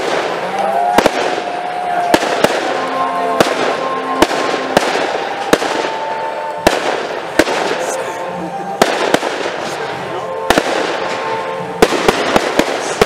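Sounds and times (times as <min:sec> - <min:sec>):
firework shells bursting: 0:10.5 - 0:13.0.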